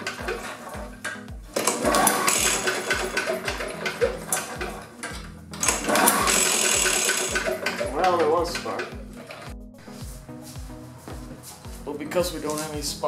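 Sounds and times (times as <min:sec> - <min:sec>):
background music with beat: 0:00.0 - 0:13.0
small engine cranking: 0:01.6 - 0:04.8, 0:05.6 - 0:09.4.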